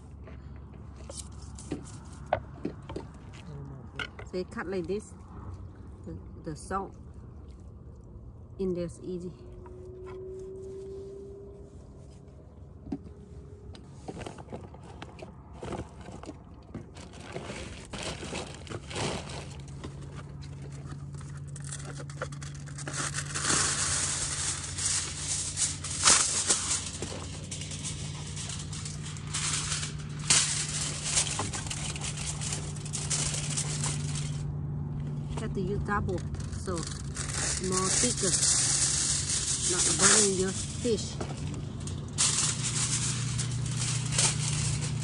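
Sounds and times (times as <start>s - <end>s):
aluminium foil crinkling: 14.2s - 45.0s.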